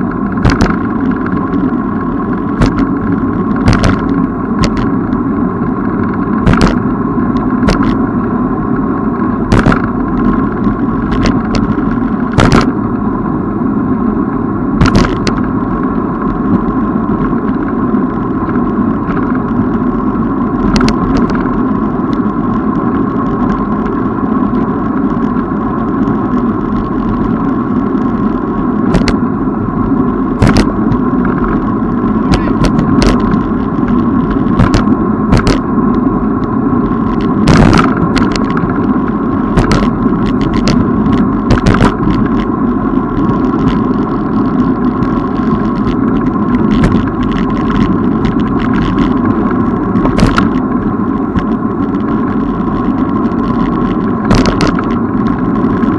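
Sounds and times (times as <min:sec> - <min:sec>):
bicycle riding rumble: 0:00.0 - 0:55.9
sharp clicks or knocks: 0:00.4 - 0:00.8, 0:03.6 - 0:04.9, 0:06.4 - 0:06.8, 0:09.5 - 0:09.9, 0:30.4 - 0:30.7, 0:34.6 - 0:35.6.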